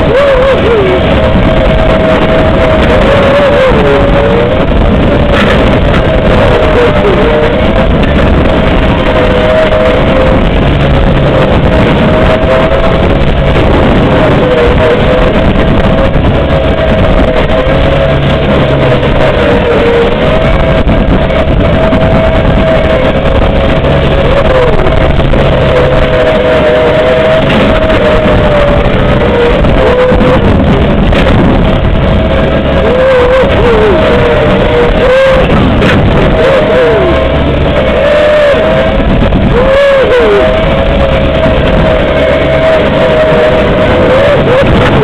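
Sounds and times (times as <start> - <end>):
heavy metal music: 0.0 - 45.0
steady whine: 0.0 - 45.0
lawn tractor engine running: 15.2 - 28.1, 36.9 - 39.4.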